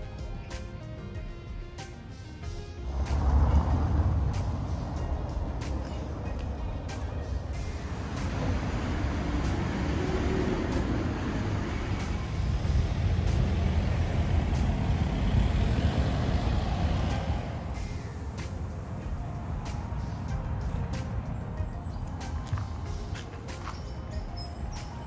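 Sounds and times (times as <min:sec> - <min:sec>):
heavy vehicles passing: 0:00.0 - 0:25.0
road traffic rumble: 0:00.0 - 0:25.0.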